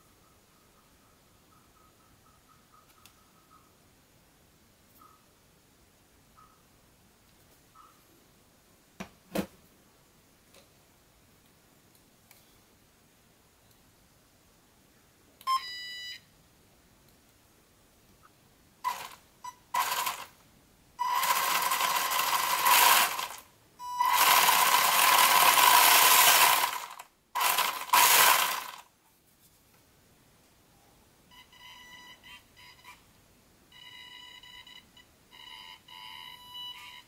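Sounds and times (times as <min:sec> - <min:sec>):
short beep: 0:15.5 - 0:16.2
electric motor whine: 0:24.0 - 0:28.8.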